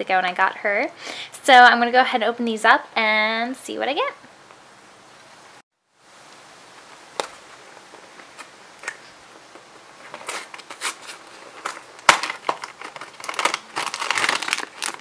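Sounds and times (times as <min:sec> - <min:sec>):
foil bag crinkling: 0:09.9 - 0:15.0
cardboard box tearing: 0:10.0 - 0:15.0.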